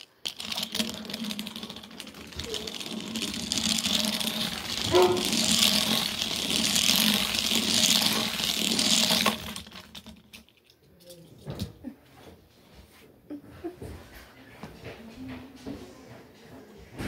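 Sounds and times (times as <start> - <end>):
toy car rolling on plastic track: 0.0 - 11.4.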